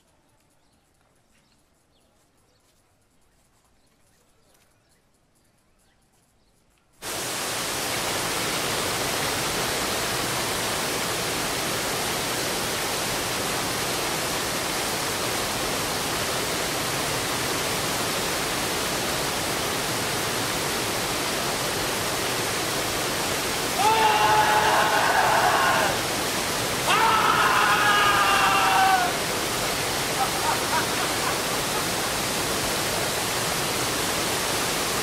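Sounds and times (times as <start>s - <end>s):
waterfall rushing: 7.0s - 35.0s.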